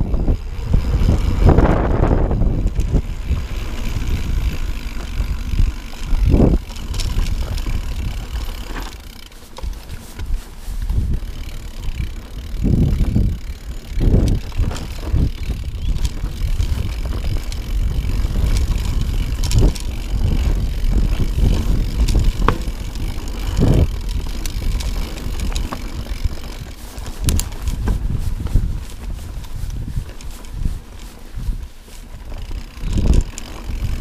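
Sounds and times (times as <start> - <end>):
bike tyres rolling over stones: 0.0 - 34.0
rattling clicks: 2.0 - 31.2, 32.3 - 34.0
bike hitting rocks: 11.0 - 29.2.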